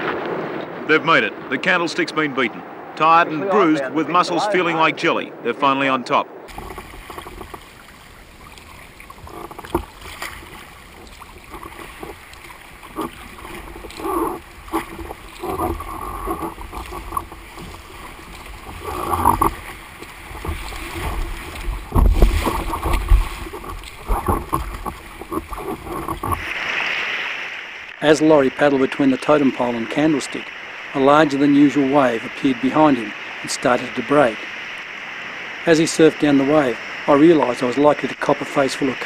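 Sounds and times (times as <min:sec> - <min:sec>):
sea water sloshing and splashing: 0:06.4 - 0:28.0.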